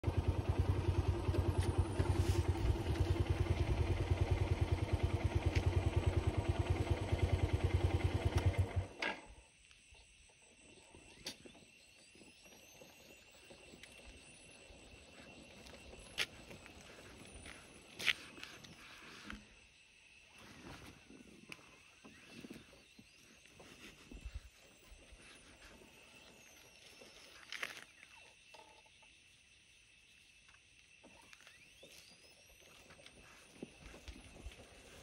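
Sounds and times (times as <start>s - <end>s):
engine idling: 0.0s - 9.0s.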